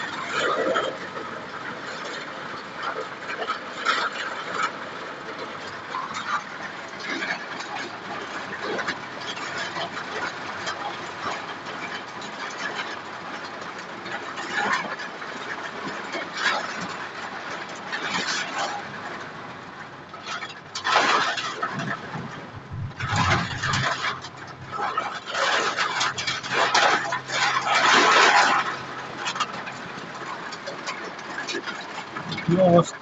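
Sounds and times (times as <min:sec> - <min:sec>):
heavy rain on car windshield: 0:00.0 - 0:33.0.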